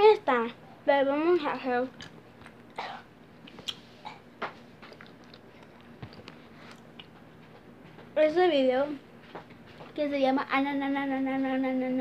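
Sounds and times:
low steady hum: 0:00.0 - 0:12.0.

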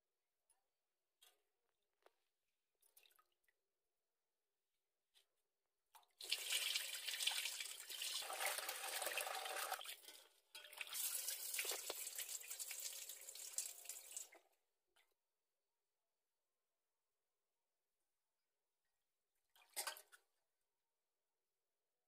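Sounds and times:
tap water running: 0:06.2 - 0:14.4.

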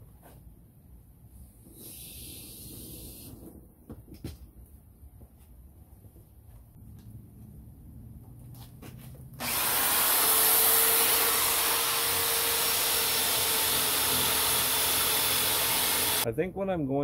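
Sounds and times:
electric drill whining: 0:09.4 - 0:16.2.

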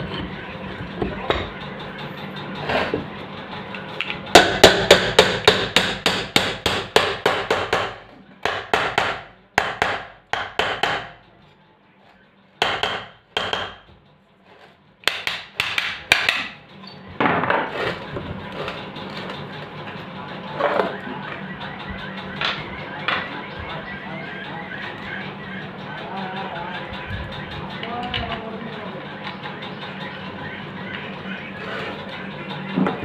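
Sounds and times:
hammer knocking on metal: 0:04.4 - 0:11.2, 0:12.6 - 0:13.9.

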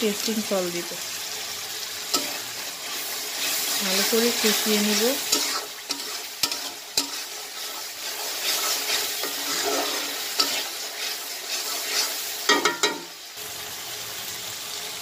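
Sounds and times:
onion masala sizzling in oil: 0:00.0 - 0:15.0
metal spatula scraping wok: 0:02.0 - 0:13.2.

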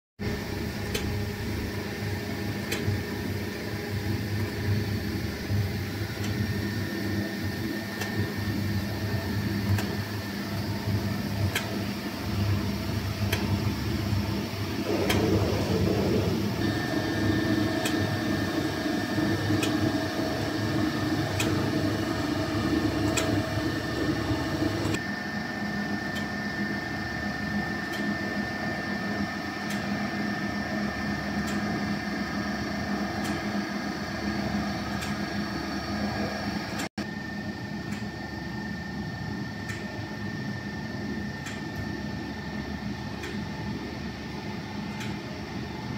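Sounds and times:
mixer motor humming: 0:00.2 - 0:25.0.

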